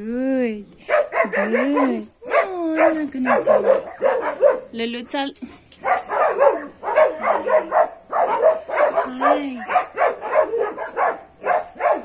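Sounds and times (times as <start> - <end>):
dog barking: 0.9 - 4.8, 5.8 - 12.0.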